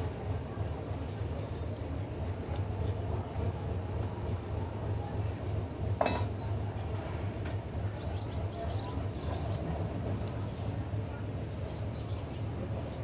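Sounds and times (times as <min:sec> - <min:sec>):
steady low hum: 0:00.0 - 0:13.0
sharp clink with ringing: 0:05.9 - 0:06.4.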